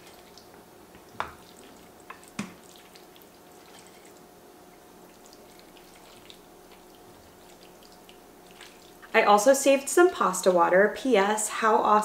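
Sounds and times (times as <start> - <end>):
faint steady hum: 0.0 - 12.0
wet squelches of noodles: 1.4 - 9.1.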